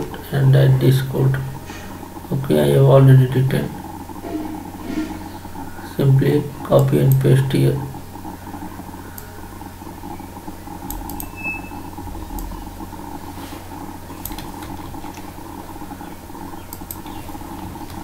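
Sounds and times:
electrical hum and hiss: 0.0s - 18.0s
mouse and keyboard clicks: 14.2s - 15.3s.

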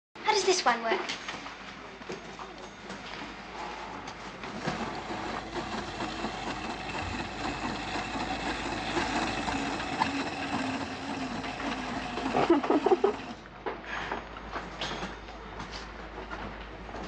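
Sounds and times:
toy mechanical whirring: 4.5s - 13.4s.

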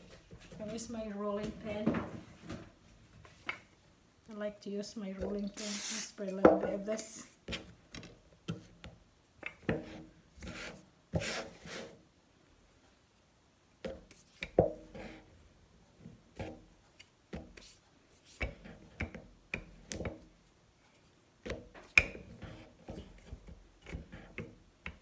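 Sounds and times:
rolling pin rubbing and scraping: 9.7s - 12.0s, 22.2s - 24.4s.

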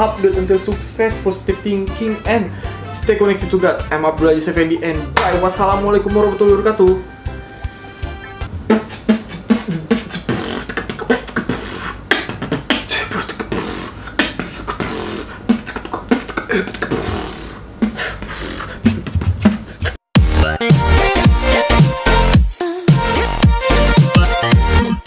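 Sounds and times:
man beatboxing: 8.6s - 25.0s.

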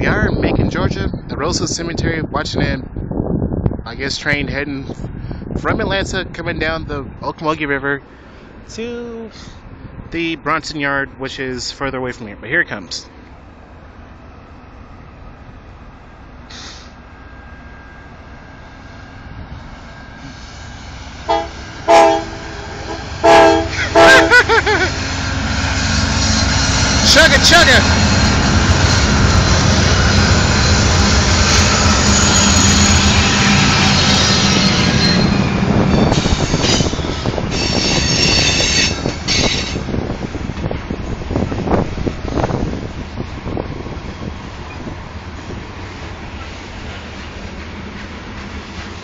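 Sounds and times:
diesel locomotive rumbling: 0.0s - 49.0s
brief hiss: 16.5s - 17.0s
train wheels squealing: 25.0s - 39.8s.

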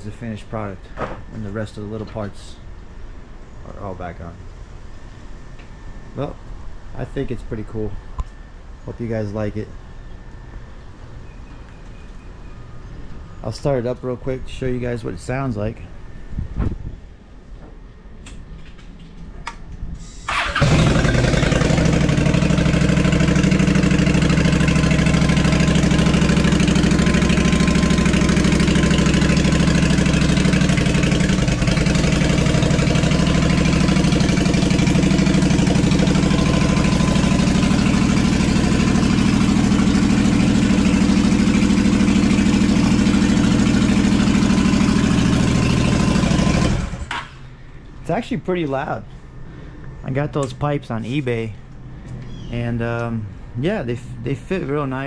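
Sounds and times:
motorcycle engine idling: 20.3s - 47.2s.

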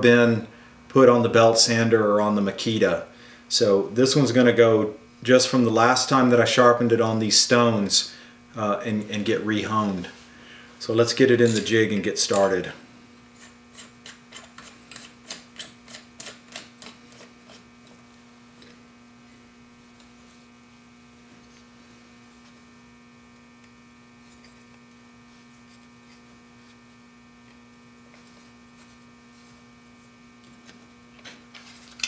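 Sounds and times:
steady electrical hum: 0.0s - 32.0s.

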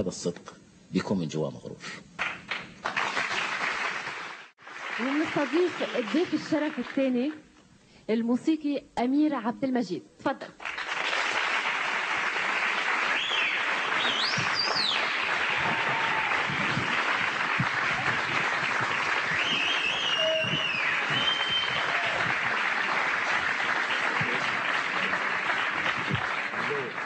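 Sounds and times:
audience applauding: 2.2s - 7.3s, 10.6s - 27.0s
high calls from crowd: 13.3s - 17.1s, 17.7s - 22.7s.

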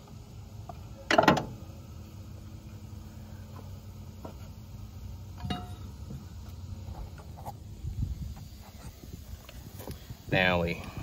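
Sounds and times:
low steady hum: 0.0s - 11.0s
metallic clank: 5.4s - 5.9s.

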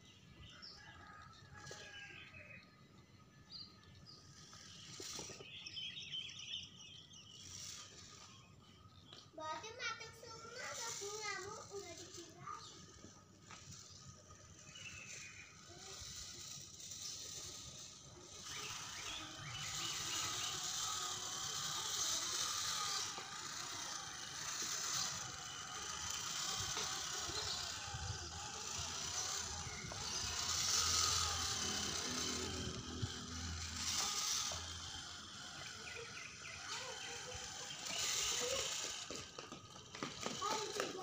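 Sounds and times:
electric motor whirring: 0.4s - 41.0s
tyres clicking and scraping on stones: 37.6s - 41.0s.

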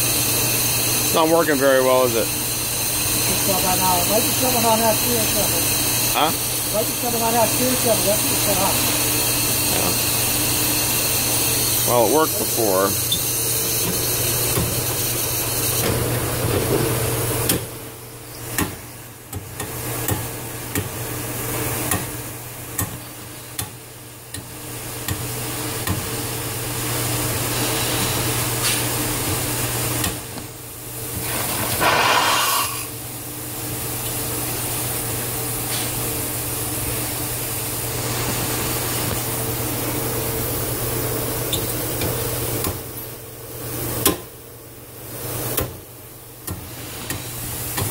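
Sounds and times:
steam trap hissing and spitting: 31.1s - 33.0s.

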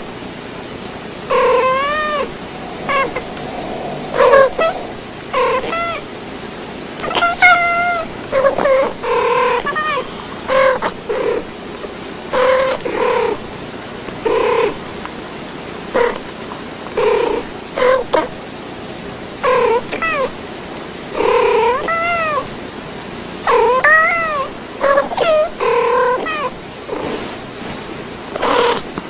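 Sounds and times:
cats meowing and chirping: 1.3s - 6.0s, 21.6s - 22.5s, 23.5s - 26.5s.

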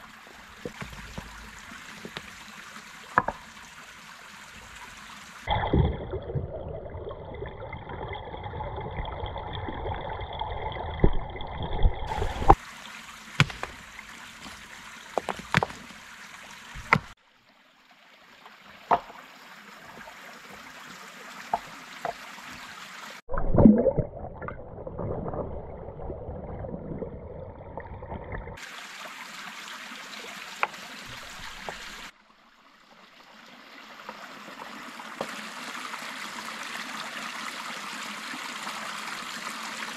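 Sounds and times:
stream running over stones: 0.0s - 23.6s, 27.9s - 39.9s
rock knocking on rock: 0.6s - 2.4s, 3.2s - 3.5s, 13.4s - 16.0s, 16.8s - 17.1s.

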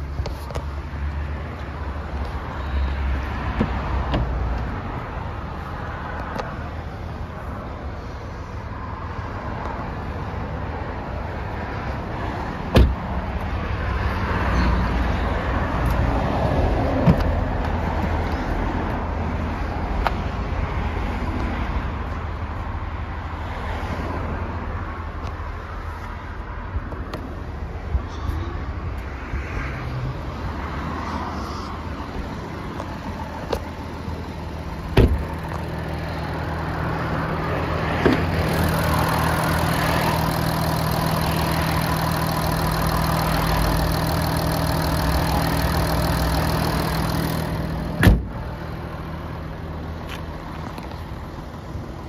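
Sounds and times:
diesel engine idling: 0.0s - 20.7s, 31.3s - 52.0s.

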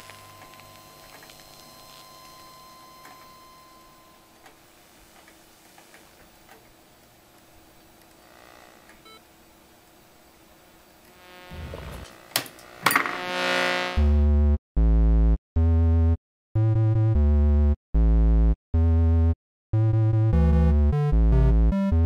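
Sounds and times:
brief sliding tone: 12.9s - 14.2s.

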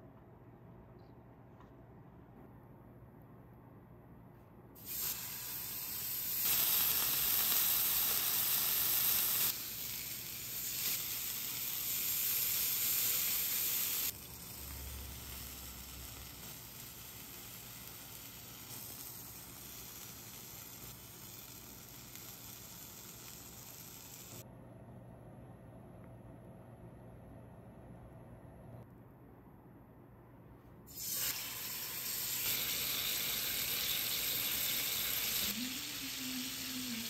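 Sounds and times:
beef sizzling on hot plate: 4.8s - 24.4s, 30.9s - 37.0s.

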